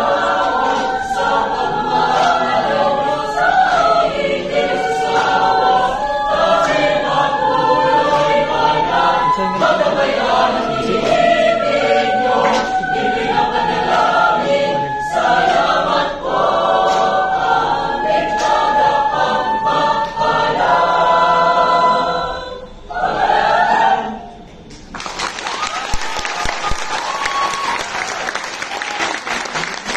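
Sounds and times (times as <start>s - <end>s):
women's choir singing: 0.0s - 24.6s.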